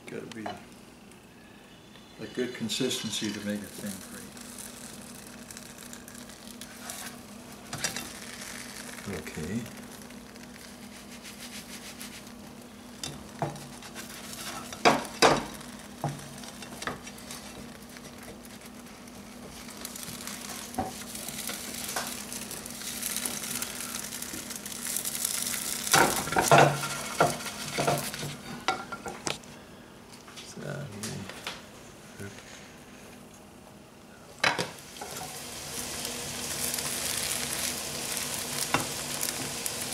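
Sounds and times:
crepe sizzling in a pan: 0:02.2 - 0:29.4, 0:34.4 - 0:39.9
spatula scraping and knocking pan: 0:13.0 - 0:18.4, 0:20.0 - 0:22.2, 0:25.9 - 0:29.2.

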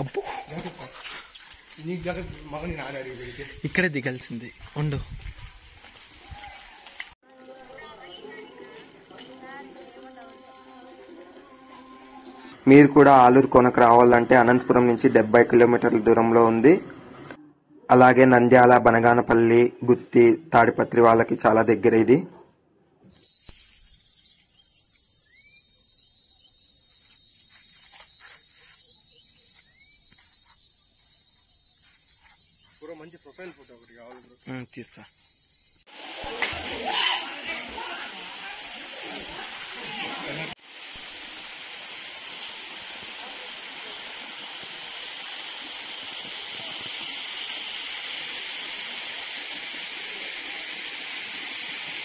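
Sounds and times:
short arched chirps: 0:23.1 - 0:35.9
insect chorus buzzing: 0:23.1 - 0:36.1
water hissing: 0:23.1 - 0:52.0.

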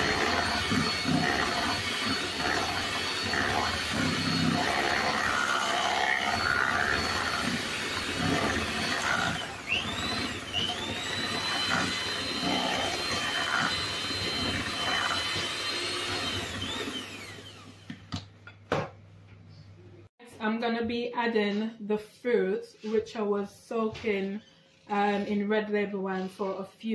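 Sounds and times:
electric hand mixer whirring: 0:00.0 - 0:18.1.

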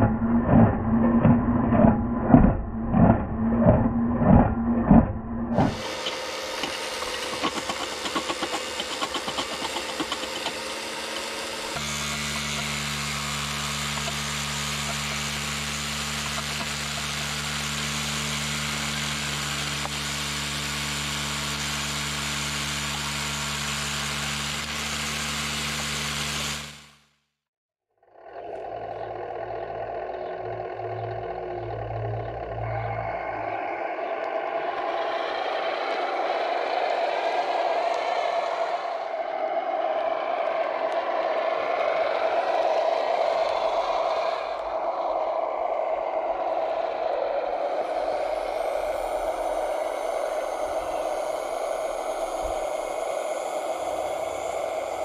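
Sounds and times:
rhythmic motor pulsing: 0:00.0 - 0:25.6, 0:28.4 - 0:55.0
motor hum with fine clatter: 0:00.0 - 0:27.0.

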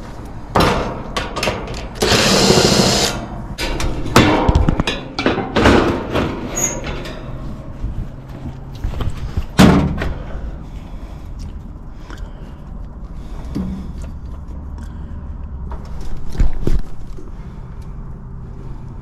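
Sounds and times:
steady low hum: 0:00.0 - 0:19.0
loud metal clatter: 0:00.5 - 0:07.6.

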